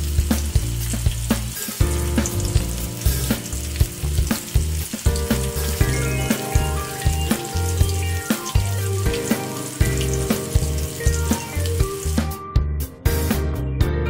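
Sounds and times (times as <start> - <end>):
oil sizzling: 0.0 - 12.4
background music with beat: 0.0 - 14.0.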